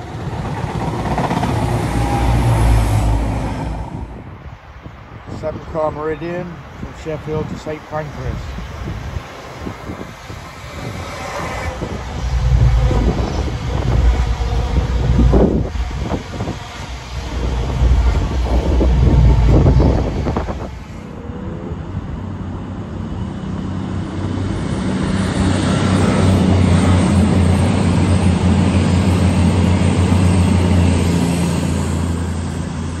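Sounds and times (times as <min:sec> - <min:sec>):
diesel train engine drone: 0:00.0 - 0:33.0
diesel train rumbling: 0:00.0 - 0:33.0.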